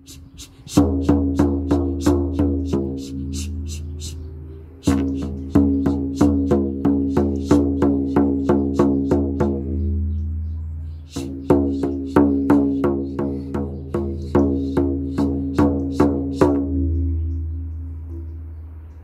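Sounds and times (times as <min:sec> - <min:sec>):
frame drum beaten steadily: 0:00.7 - 0:04.2, 0:04.8 - 0:09.8, 0:11.1 - 0:16.9.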